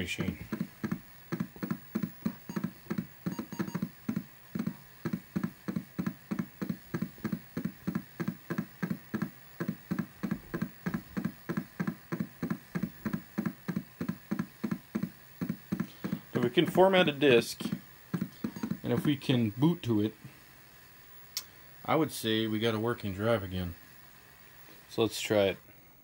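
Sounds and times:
floppy disk drive chugging: 0:00.0 - 0:21.1.

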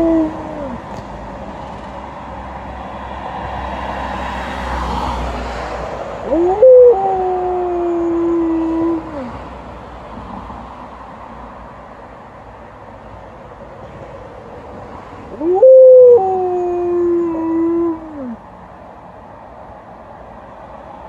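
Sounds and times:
dog howling: 0:00.0 - 0:00.8, 0:06.2 - 0:09.4, 0:15.3 - 0:18.4.

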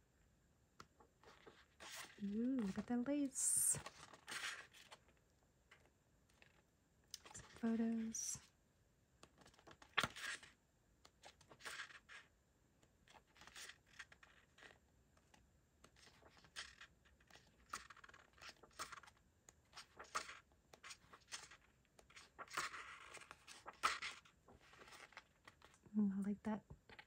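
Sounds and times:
paper sheets rustling: 0:01.2 - 0:05.0, 0:15.9 - 0:19.1, 0:19.7 - 0:25.8.

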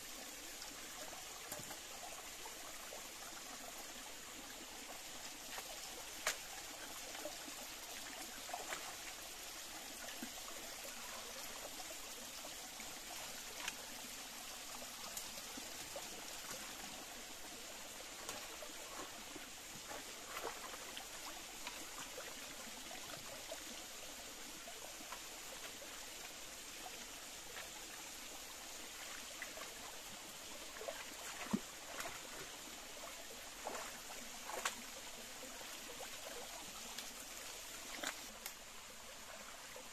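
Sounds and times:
stream trickling over rocks: 0:00.0 - 0:39.9
splashes from wading: 0:18.2 - 0:21.8, 0:30.8 - 0:32.6, 0:33.5 - 0:34.9.

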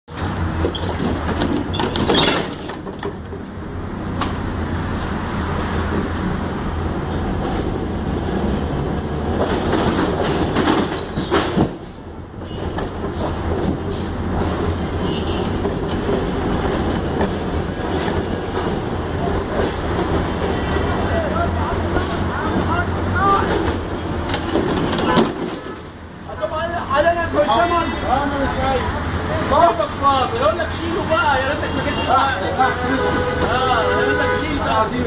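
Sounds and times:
wheels clacking on rails: 0:00.1 - 0:26.8
tram rumbling with low hum: 0:00.1 - 0:35.0.

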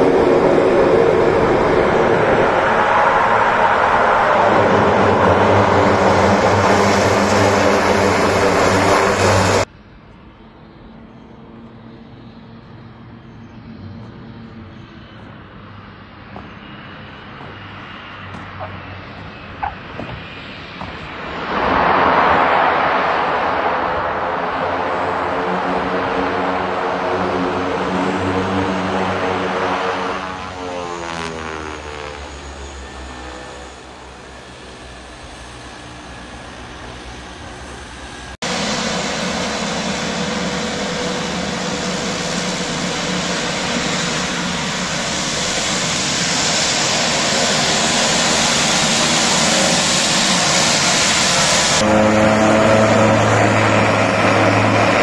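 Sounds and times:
propeller hiss: 0:00.0 - 0:09.7, 0:35.9 - 0:55.0
turboprop engine drone: 0:00.0 - 0:55.0.

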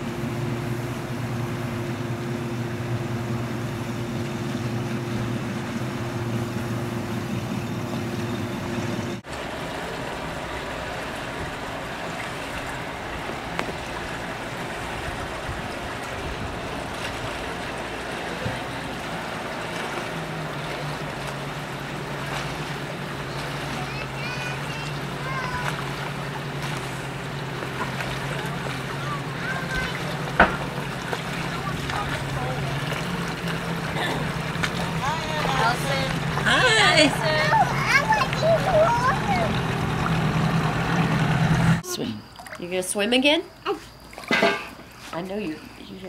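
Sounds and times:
outboard motor humming: 0:00.0 - 0:46.0
wind: 0:00.0 - 0:46.0
water hissing: 0:09.8 - 0:41.8.

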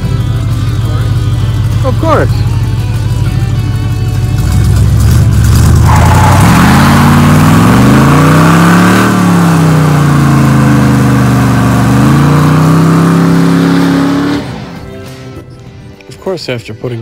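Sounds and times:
pickup truck engine revving: 0:04.2 - 0:15.0.

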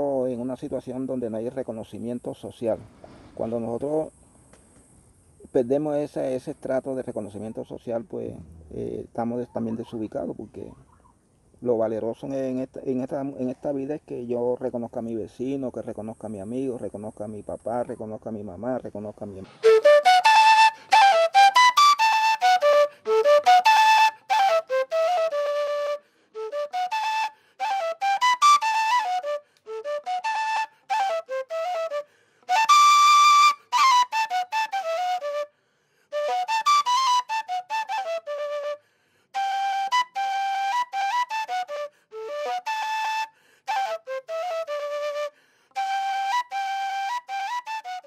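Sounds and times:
duct flute melody: 0:19.4 - 0:48.0.

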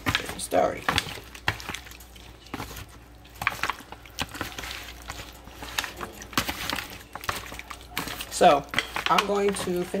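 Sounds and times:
wet squelching of chicken: 0:00.9 - 0:08.4.

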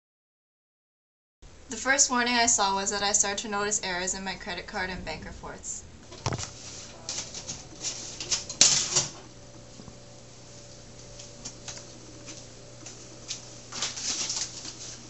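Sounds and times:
low hum: 0:02.6 - 0:13.7.

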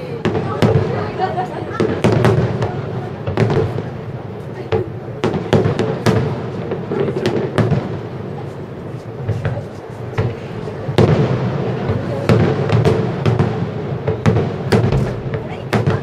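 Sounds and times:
fireworks shells bursting: 0:09.0 - 0:16.0.

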